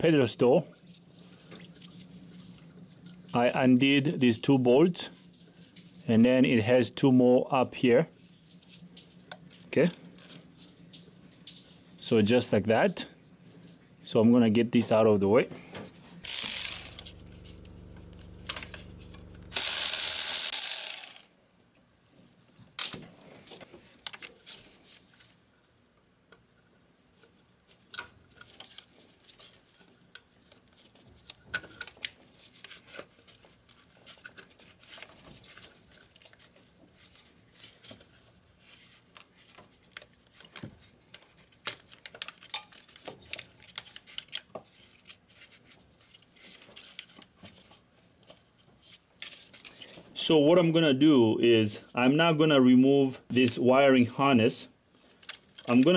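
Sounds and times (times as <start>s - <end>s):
metallic clinks of bolts and tools: 9.8s - 10.5s
cordless electric ratchet running: 16.3s - 17.2s, 19.4s - 21.3s.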